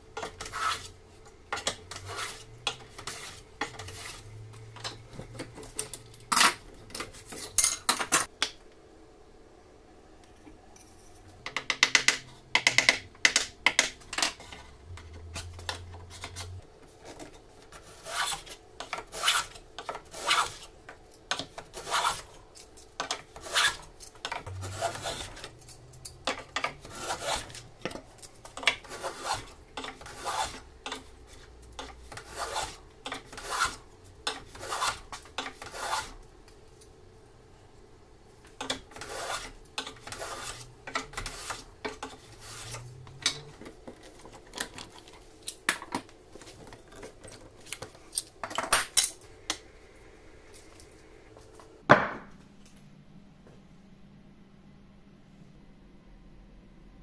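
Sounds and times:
hand plane rasping swish: 26.8 - 27.6, 28.8 - 30.6, 32.2 - 33.8, 34.5 - 35.0, 35.6 - 36.1, 39.0 - 41.6.

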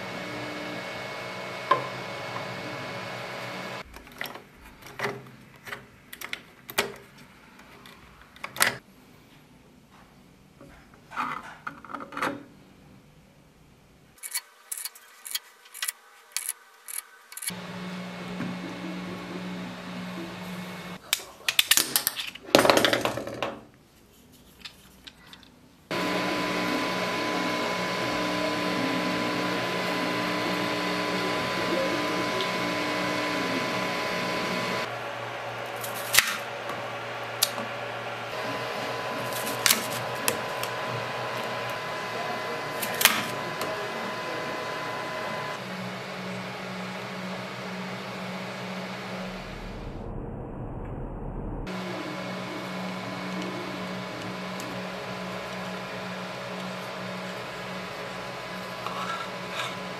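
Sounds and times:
printer cooling fan whir: 0.0 - 3.9, 17.5 - 21.0, 25.9 - 49.7, 51.7 - 59.9
stepper motor tones: 0.0 - 3.9, 17.5 - 21.0, 25.9 - 59.9
plastic gears clicking and clacking: 14.2 - 17.5
steady hum: 17.5 - 21.0, 25.9 - 59.9.

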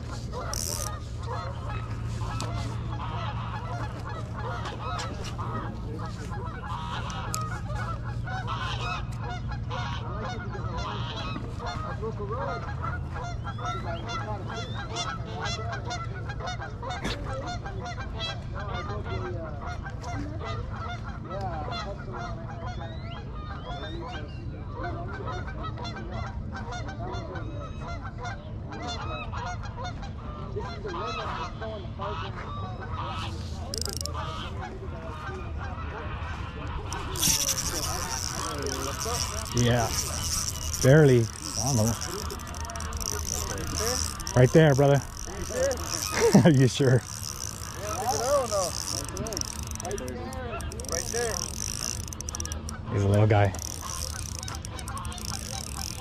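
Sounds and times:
geese honking: 0.0 - 16.9, 30.9 - 56.0.

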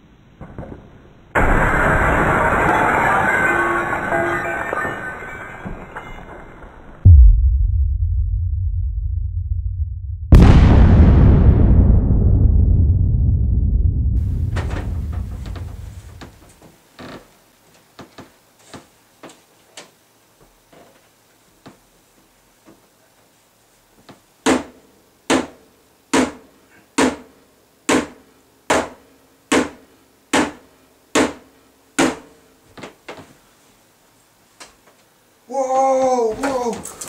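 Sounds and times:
hatchet striking television: 27.9 - 30.6, 31.2 - 31.4.

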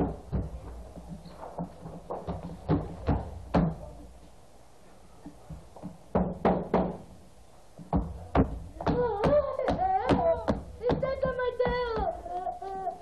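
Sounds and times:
knocks and thumps on stage floor: 0.0 - 3.9, 5.5 - 7.1, 7.8 - 12.1.

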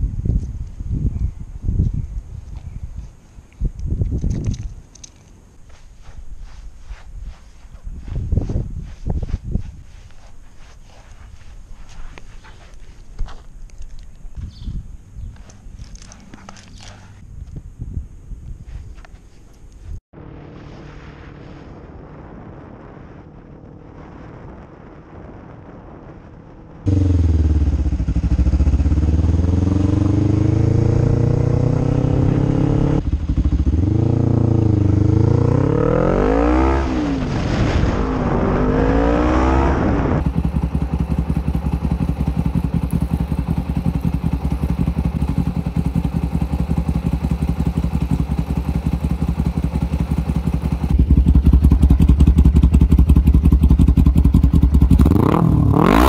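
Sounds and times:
motorcycle engine revving: 20.1 - 24.3, 26.6 - 56.0.

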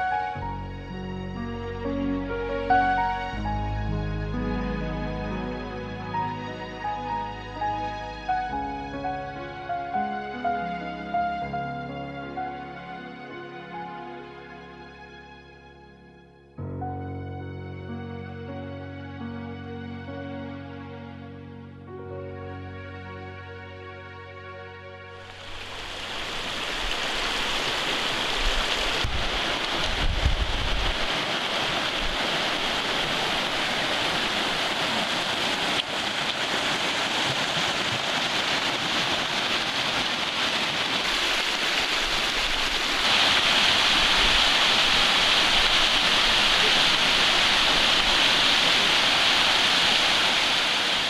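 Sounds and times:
stream rushing over rocks: 25.2 - 51.0
wind rumbling on microphone: 25.4 - 51.0.

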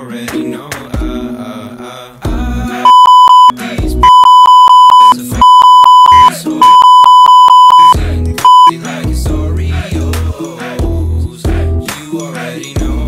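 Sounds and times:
censor bleeps: 2.9 - 8.7.

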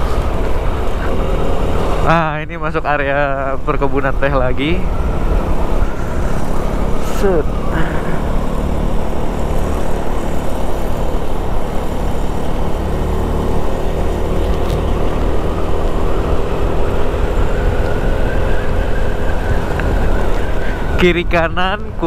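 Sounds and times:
wind rushing over microphone: 3.5 - 7.8, 8.7 - 22.0
scooter engine running: 4.8 - 21.0.

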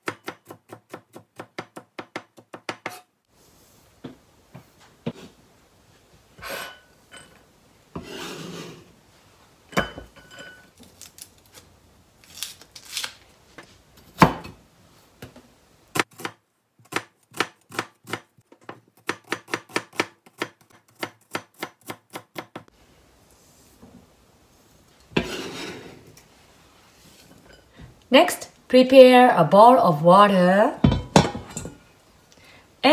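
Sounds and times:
knife chopping onion: 0.0 - 3.1, 19.0 - 22.6.

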